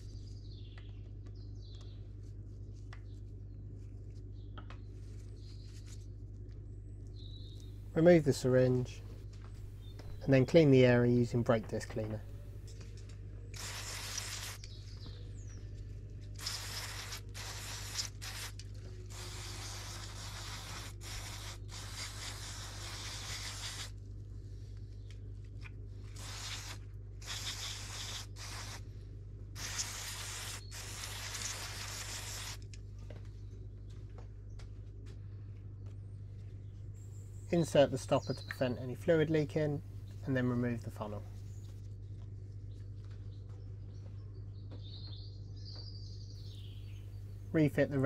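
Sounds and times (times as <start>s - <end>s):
aerosol spray hissing: 13.6s - 14.8s, 16.4s - 24.0s, 26.1s - 28.9s, 29.6s - 32.6s.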